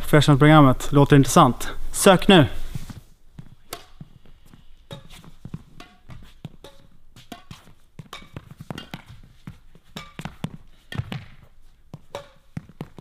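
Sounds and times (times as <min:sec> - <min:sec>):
footsteps on court floor: 0:02.7 - 0:13.0
rackets hitting shuttlecock: 0:03.4 - 0:13.0.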